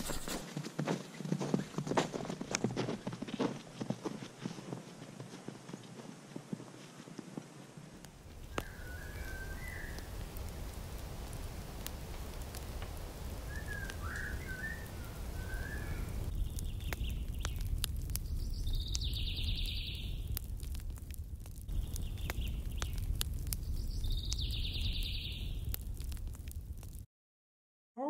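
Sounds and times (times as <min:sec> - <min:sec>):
small birds chirping: 0:08.4 - 0:26.3.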